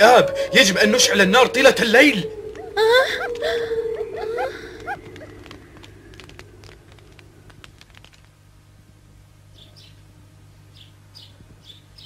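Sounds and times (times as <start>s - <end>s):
high falling bird chirps: 0.0s - 7.8s
low steady hum: 0.0s - 12.0s
campfire crackling: 1.5s - 9.4s.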